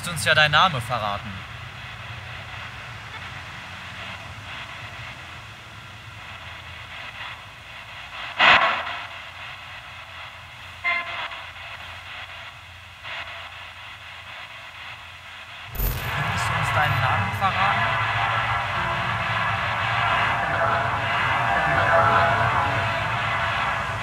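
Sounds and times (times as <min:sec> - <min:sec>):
motorway traffic rumble: 0:00.0 - 0:08.4, 0:16.2 - 0:24.0
radio static hiss: 0:00.0 - 0:24.0
tone-laden radio snatches: 0:15.7 - 0:23.2.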